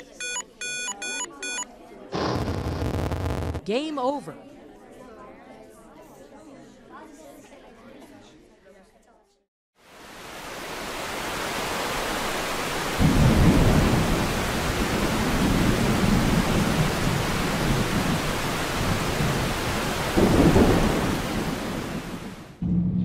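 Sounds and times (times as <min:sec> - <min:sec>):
heavy rain: 0:09.8 - 0:22.6
thunder rumbling: 0:12.8 - 0:23.0.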